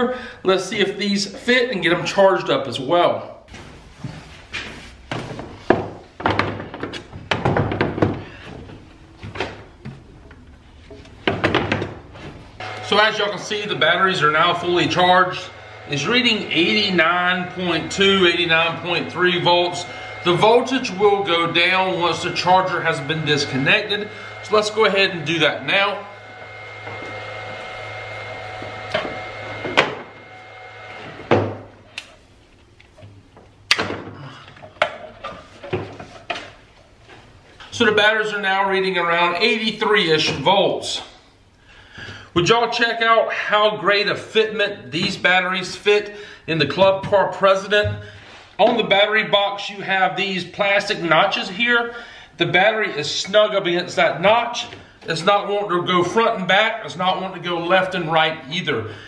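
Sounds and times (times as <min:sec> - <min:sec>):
electrical hum: 0:07.4 - 0:59.0
thin high whine: 0:12.6 - 0:32.0.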